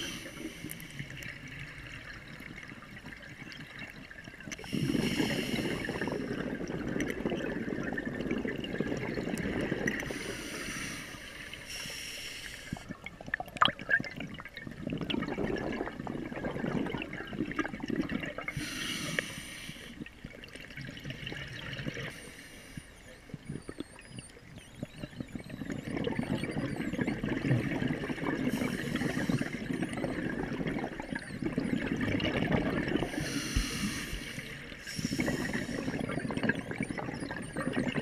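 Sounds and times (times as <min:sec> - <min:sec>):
regulator hissing inhalation: 0:04.6 - 0:06.4, 0:10.0 - 0:12.8, 0:18.5 - 0:20.0, 0:33.0 - 0:36.0
bubbling exhalation underwater: 0:04.6 - 0:10.1, 0:13.1 - 0:18.6, 0:25.6 - 0:33.3, 0:35.0 - 0:38.0.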